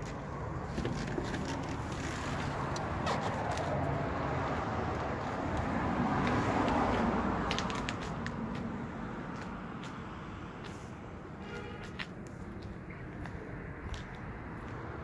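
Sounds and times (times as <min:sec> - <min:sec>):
handling clicks and rustles: 0:00.0 - 0:03.8
motor vehicle rumble: 0:00.0 - 0:15.0.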